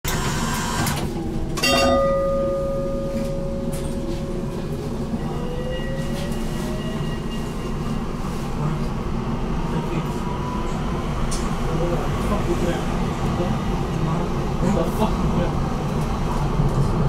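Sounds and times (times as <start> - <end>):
tram bell ring: 1.4 - 7.2
tram drive whine rising: 2.2 - 14.6.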